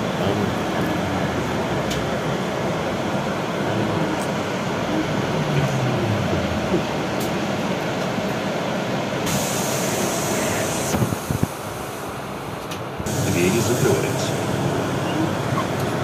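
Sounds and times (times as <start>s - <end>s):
bus running rumble: 0.0s - 16.0s
loud air hiss: 9.2s - 12.4s, 13.0s - 15.0s.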